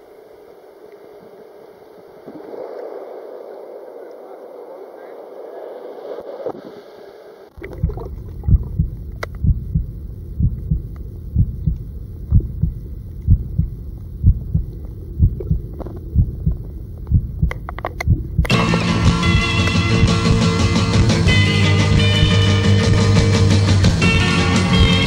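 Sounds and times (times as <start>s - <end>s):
faint sharp clicks: 4.0s - 4.2s, 9.1s - 9.5s, 17.0s - 18.5s
dull underwater rumble: 5.8s - 22.3s
low underwater thumps: 7.6s - 21.2s
music: 18.5s - 25.0s.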